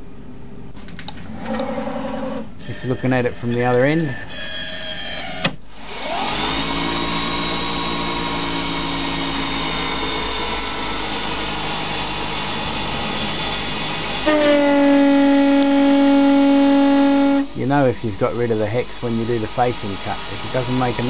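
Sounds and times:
lathe spindle whirring: 5.8 - 21.0
lathe tool cutting steel: 5.9 - 21.0.

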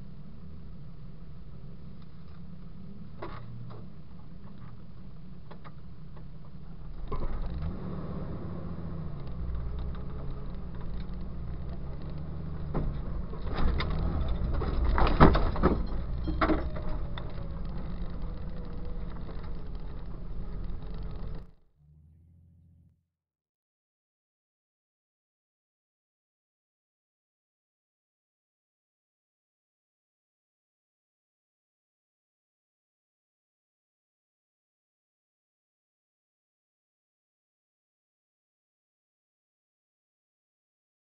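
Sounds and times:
off-road vehicle engine revving: 6.2 - 23.0
sharp knocks and clunks: 10.7 - 17.5.

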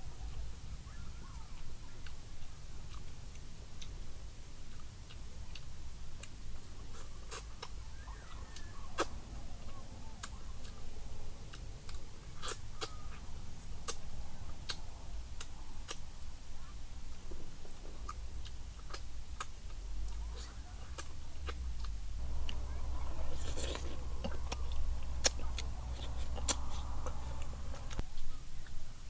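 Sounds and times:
low steady rumble: 0.0 - 29.0
person chewing and smacking: 4.6 - 10.9, 11.5 - 28.8.

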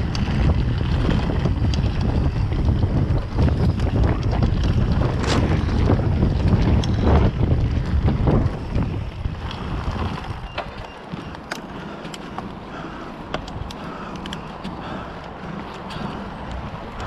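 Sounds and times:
bike clicks and rattles: 0.0 - 17.0
tyres rolling on dirt: 0.0 - 17.0
wind buffeting microphone: 0.0 - 17.0.

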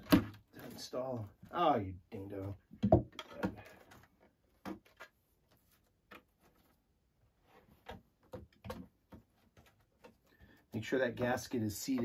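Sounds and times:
handling knocks and clicks: 2.3 - 5.2.

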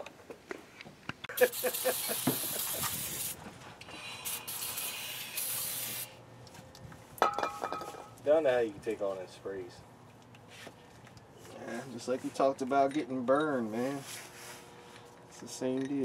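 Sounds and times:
aerosol spray hissing: 1.3 - 3.4, 4.1 - 6.2.

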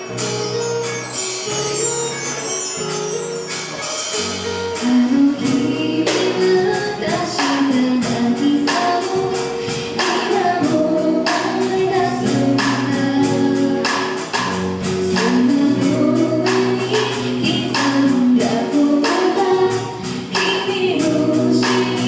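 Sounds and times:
percussion beat: 0.0 - 5.0
electric guitar: 0.0 - 22.0
woman singing: 4.4 - 22.0.

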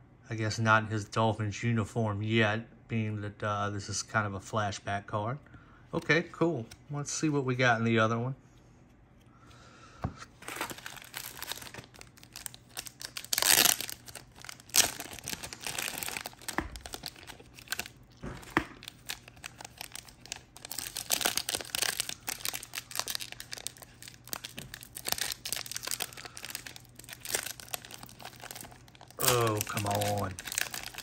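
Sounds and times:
foil wrapper crinkling: 10.3 - 31.0
wrapper tearing: 10.4 - 31.0.

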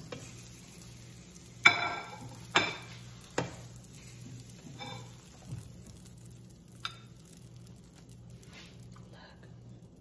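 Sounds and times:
spatula knocking in frying pan: 0.0 - 0.4, 1.6 - 5.6
faint sizzling: 0.0 - 10.0.

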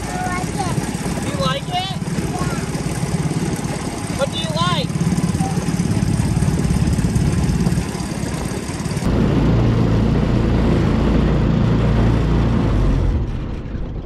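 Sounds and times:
small engine running: 0.0 - 13.8
water noise: 0.0 - 14.0
wind noise: 4.9 - 14.0.

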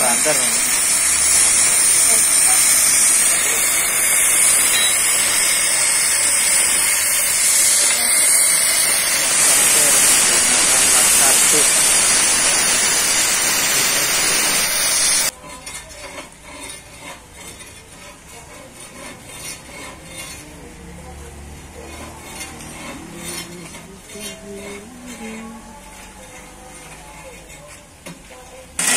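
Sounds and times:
cutting torch jet hissing: 0.0 - 15.3
torch flame crackling sizzle: 0.0 - 15.3.

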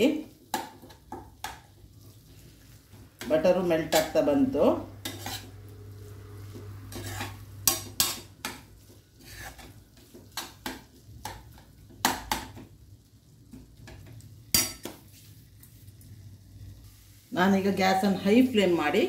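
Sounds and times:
faint sizzle of frying: 0.0 - 19.0
spoon scraping a metal pan: 3.2 - 10.8.

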